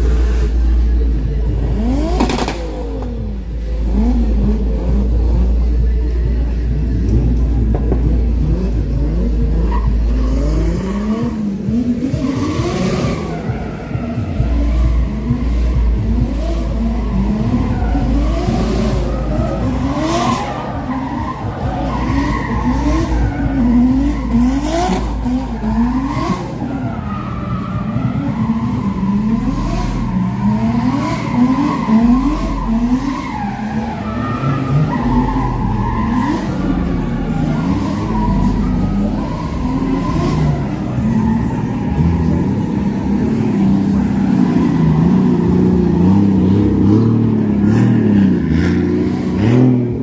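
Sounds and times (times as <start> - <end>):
car engines revving: 0.0 - 50.0
tyres skidding and squealing: 0.0 - 50.0.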